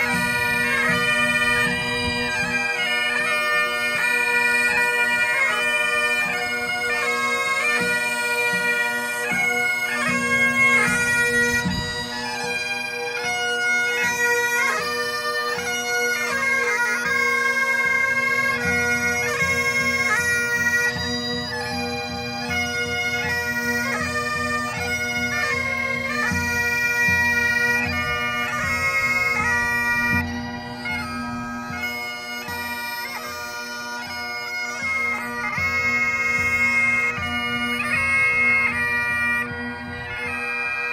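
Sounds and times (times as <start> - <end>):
bagpipe drones humming: 0.0 - 40.9
bagpipes playing a tune: 0.0 - 40.9.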